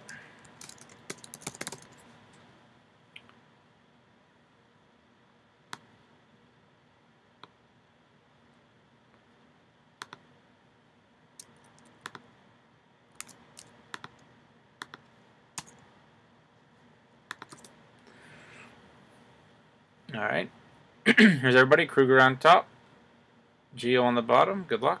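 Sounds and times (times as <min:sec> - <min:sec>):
mouse and keyboard clicks: 0:11.4 - 0:12.2, 0:14.8 - 0:15.8, 0:17.3 - 0:17.7.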